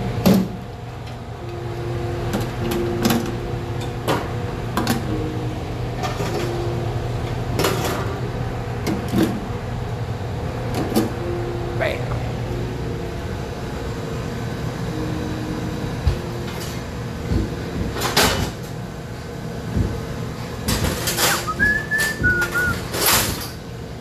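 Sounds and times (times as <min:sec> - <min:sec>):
kitchen equipment humming: 0:00.0 - 0:24.0
brief whistle: 0:21.3 - 0:22.8.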